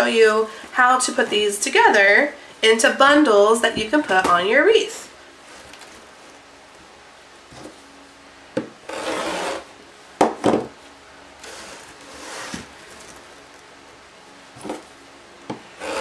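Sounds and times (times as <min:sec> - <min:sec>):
plastic mesh rustling: 0:05.4 - 0:06.9, 0:11.5 - 0:13.9
rotary cutter rasping: 0:08.9 - 0:09.7, 0:15.8 - 0:16.0.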